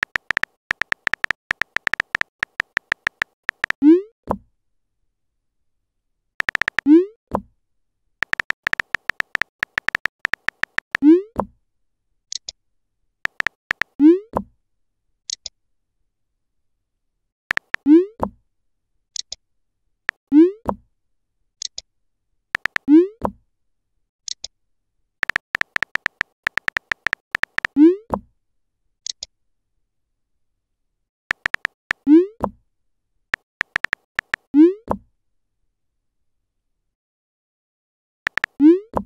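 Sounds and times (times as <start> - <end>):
keyboard tap clicks: 0.0 - 3.8, 6.4 - 6.8, 8.2 - 11.0, 13.3 - 13.9, 17.5 - 17.8, 22.6 - 22.8, 25.2 - 27.7, 31.3 - 31.8, 33.4 - 34.4, 38.3 - 38.5.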